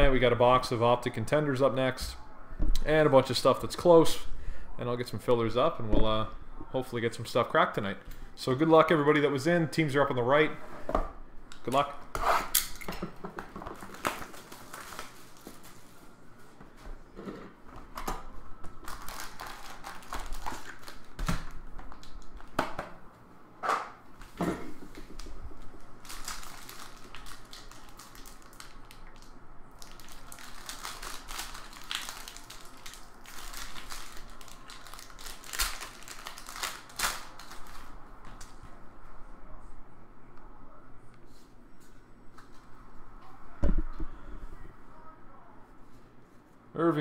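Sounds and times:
foil packs crinkling and tearing: 13.7s - 15.9s, 18.8s - 22.5s, 26.0s - 37.9s.

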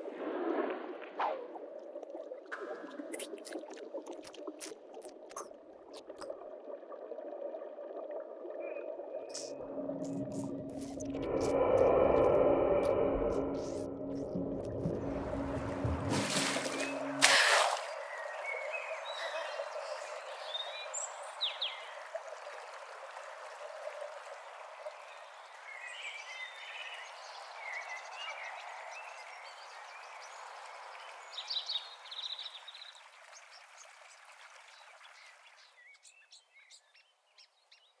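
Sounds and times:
birds chirping: 13.4s - 22.0s.

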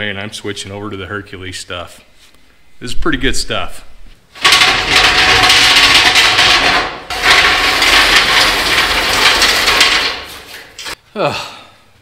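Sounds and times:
heavy metal scraping on concrete: 4.4s - 11.0s.

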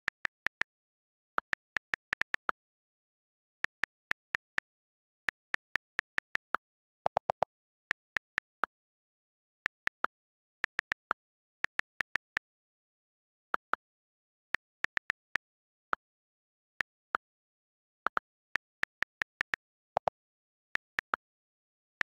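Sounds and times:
keyboard typing clicks: 3.4s - 12.6s.

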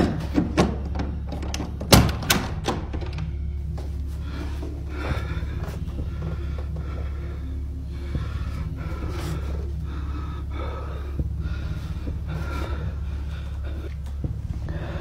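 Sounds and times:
steady low hum: 0.0s - 15.0s
person breathing heavily: 3.4s - 15.0s.

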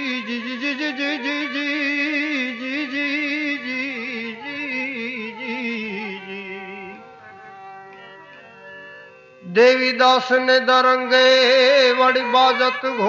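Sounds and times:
instrumental drone: 0.0s - 13.0s
man singing a held note: 9.4s - 13.0s.

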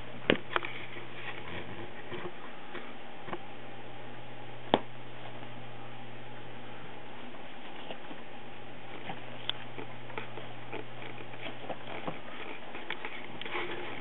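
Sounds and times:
low hum and hiss: 0.0s - 14.0s
faint rustling: 7.0s - 14.0s.

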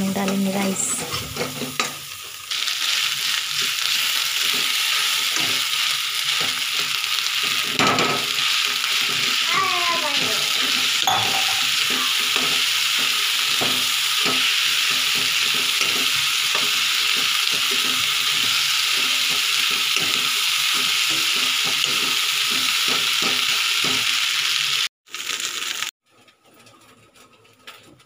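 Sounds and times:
rice sizzling in hot oil: 0.0s - 26.0s
spatula scraping a pan: 2.8s - 23.5s.

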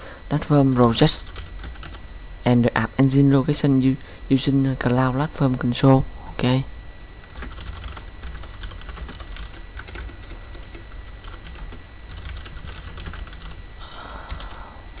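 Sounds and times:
computer keyboard typing: 1.2s - 2.0s, 7.3s - 13.6s, 14.2s - 15.0s.

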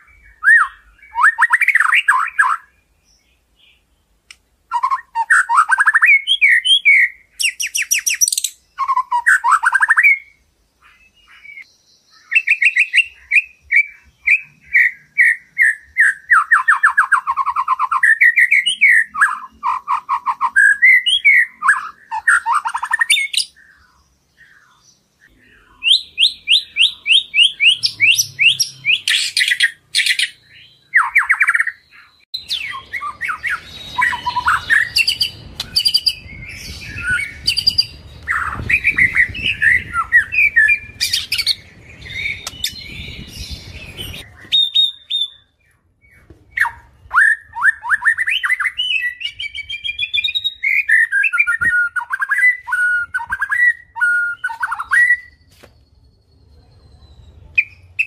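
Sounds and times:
bird singing whistles and trills: 0.0s - 3.9s, 4.7s - 58.0s
low rumbling background noise: 32.4s - 44.4s.

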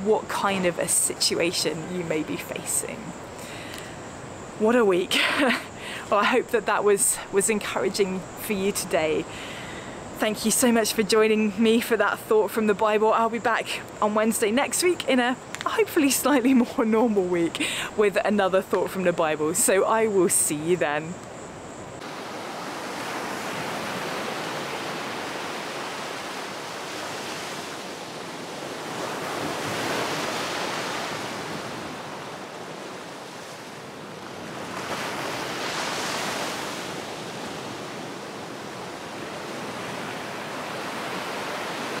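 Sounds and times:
waves breaking on beach: 22.0s - 42.0s.

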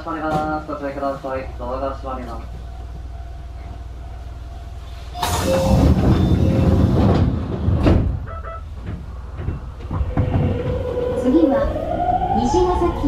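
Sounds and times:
rush of air from train doors: 4.7s - 8.2s.

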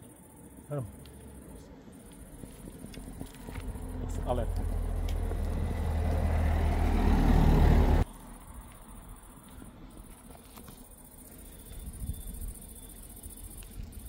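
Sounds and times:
vehicle engine rumbling: 0.0s - 14.0s
faint ticks: 1.0s - 1.4s, 8.2s - 14.0s.

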